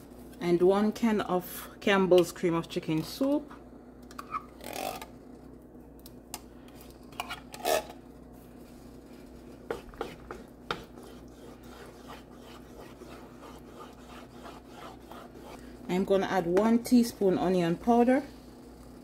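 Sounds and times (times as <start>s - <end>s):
spoon scraping soup from a can: 7.1s - 8.0s
wooden spatula stirring sauce: 8.7s - 16.9s.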